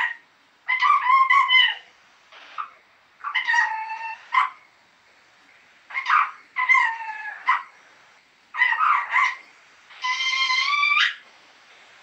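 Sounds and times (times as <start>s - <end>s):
parrot calling: 0.0s - 4.7s, 5.9s - 7.9s, 8.5s - 11.2s.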